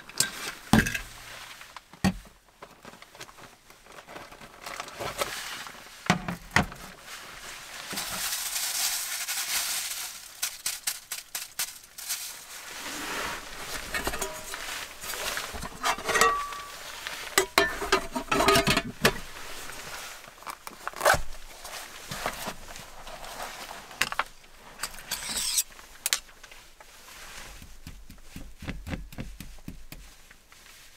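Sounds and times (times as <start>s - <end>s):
bag and clothing rustling: 12.0s - 24.0s
metal cookware clinking: 13.8s - 19.2s, 25.0s - 25.7s.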